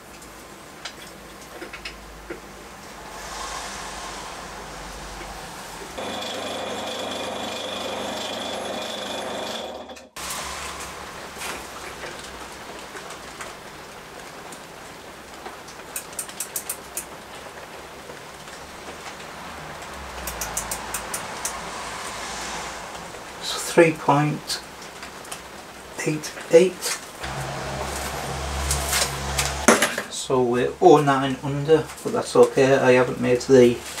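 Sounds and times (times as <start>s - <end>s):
small metal clicks of measuring tools: 16.0s - 17.1s.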